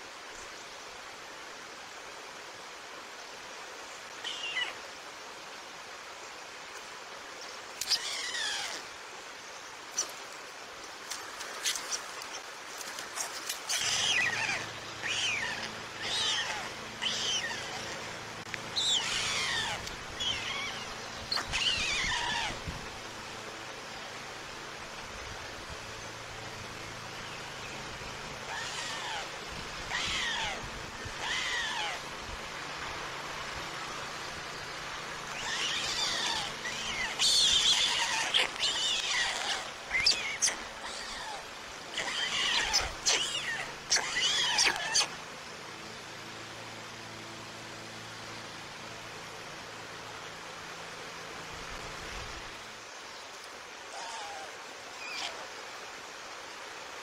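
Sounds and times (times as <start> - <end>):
stork chicks calling: 13.7 - 22.7, 28.4 - 32.0, 35.3 - 45.2.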